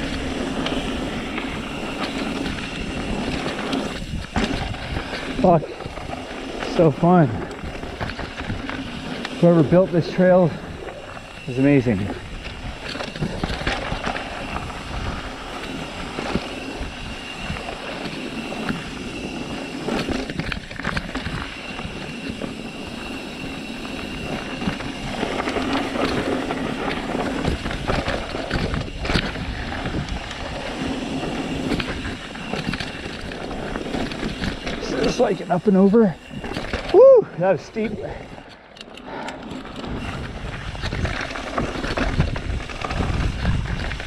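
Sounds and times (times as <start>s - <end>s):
bike knocking and rattling: 0.0s - 44.0s
tyres rolling on dirt: 0.0s - 44.0s.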